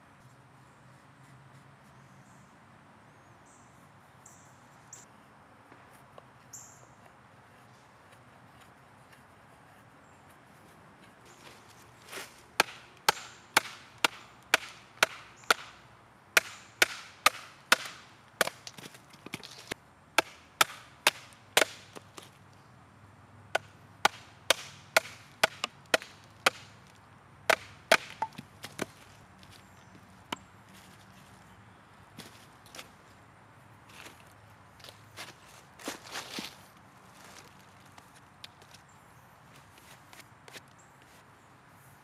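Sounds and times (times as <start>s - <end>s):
knife chopping wood: 12.6s - 15.8s, 16.4s - 22.3s, 23.6s - 26.8s, 27.5s - 29.1s.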